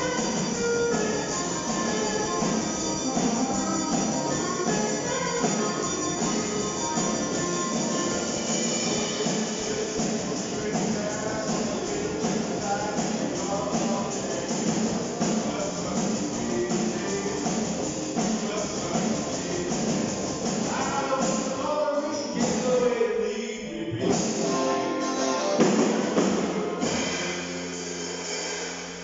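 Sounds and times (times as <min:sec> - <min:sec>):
electric guitars: 0:00.0 - 0:21.5, 0:23.7 - 0:28.2
person singing: 0:00.0 - 0:27.2
drums: 0:00.0 - 0:29.0.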